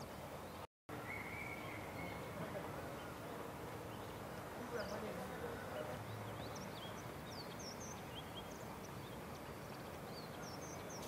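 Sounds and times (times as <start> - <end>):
birds chirping and whistling: 0.0 - 3.2, 6.1 - 11.0
steady background hiss: 0.0 - 11.0.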